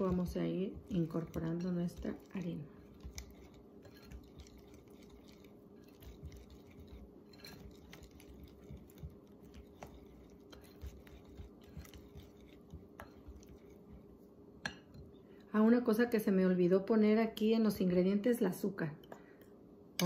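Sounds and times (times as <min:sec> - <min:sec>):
whisk ticking against glass: 0:00.0 - 0:13.9
whisk squishing batter: 0:00.0 - 0:14.3.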